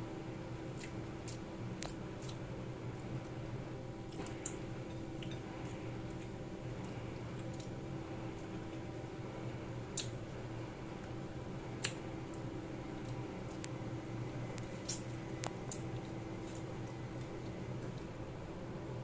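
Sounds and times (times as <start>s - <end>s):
steady low hum: 0.0s - 19.0s
wet mouth clicks and chewing: 9.9s - 10.2s, 11.8s - 12.0s, 14.6s - 16.7s.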